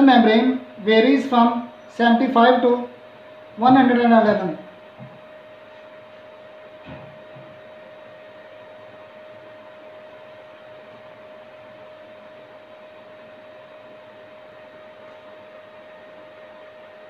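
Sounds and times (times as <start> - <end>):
constant hum tone: 0.0 - 17.0.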